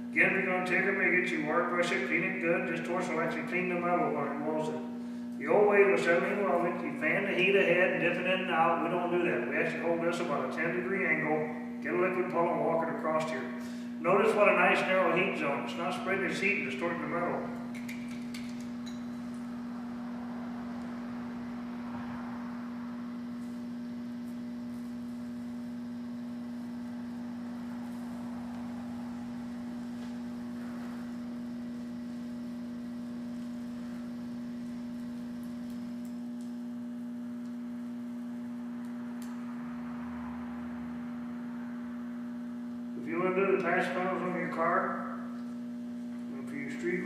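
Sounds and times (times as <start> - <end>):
low humming tone: 1.4 - 47.0
welding torch flame hiss: 23.3 - 36.6.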